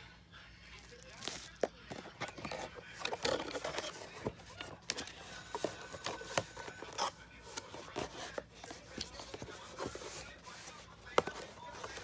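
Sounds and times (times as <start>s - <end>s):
cardboard rustling and scraping: 0.8s - 12.0s.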